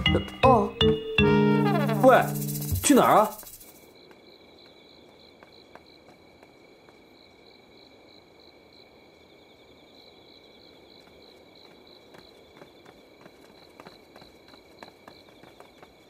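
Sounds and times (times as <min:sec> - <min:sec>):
high insect trill: 0:01.6 - 0:08.9
crickets chirping: 0:01.7 - 0:16.0.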